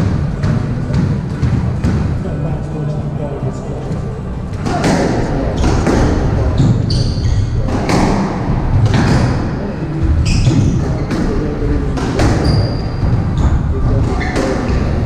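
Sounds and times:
squash ball hitting rackets and walls: 0:00.0 - 0:02.2, 0:04.6 - 0:15.0
court shoes squeaking: 0:04.5 - 0:15.0.

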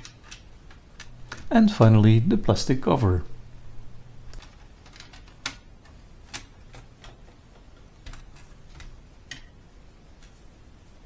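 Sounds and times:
plastic clips clicking: 0:04.3 - 0:09.6.

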